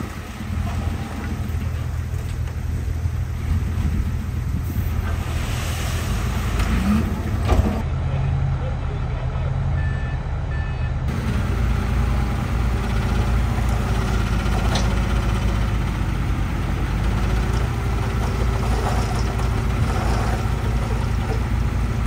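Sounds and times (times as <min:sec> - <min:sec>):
diesel engines running: 0:00.0 - 0:22.0
reversing alarm beeps: 0:09.8 - 0:11.0.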